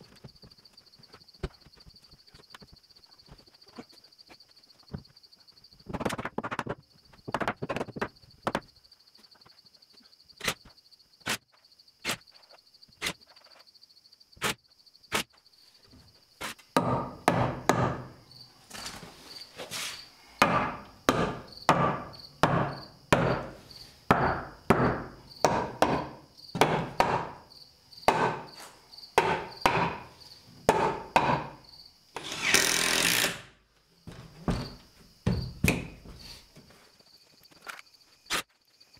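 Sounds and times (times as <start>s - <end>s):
hammer driving nails into wood: 16.8s - 18.1s, 20.4s - 23.5s, 24.1s - 27.4s, 28.1s - 28.4s, 29.2s - 30.0s, 30.7s - 31.6s.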